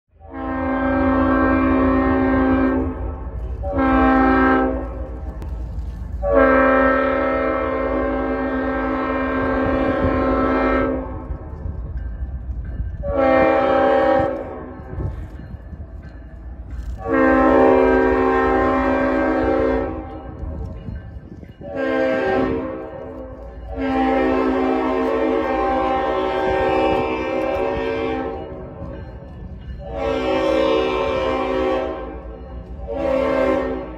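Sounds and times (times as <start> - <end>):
train rumble: 0.1 - 33.9
locomotive air horn blasts: 0.2 - 5.4, 6.2 - 11.4, 13.0 - 14.7, 16.9 - 20.4, 21.6 - 28.8, 29.8 - 33.9.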